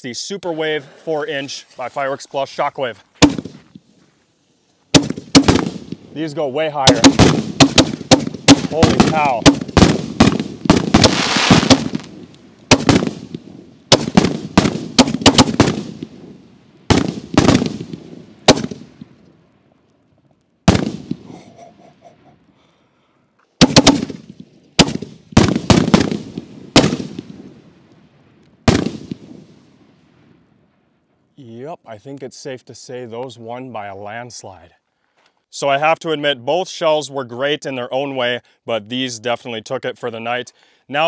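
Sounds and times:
firework shells bursting: 3.2 - 3.6, 4.9 - 6.2, 6.8 - 19.2, 23.6 - 27.5.

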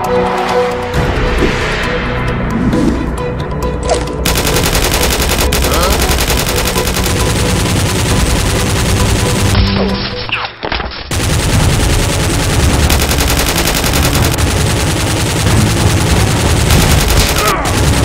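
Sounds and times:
machine-gun bursts: 4.2 - 9.6, 11.1 - 18.0.

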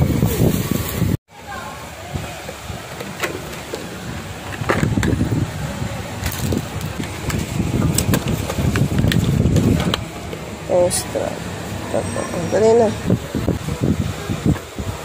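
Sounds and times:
steady low rumble: 3.5 - 15.0.

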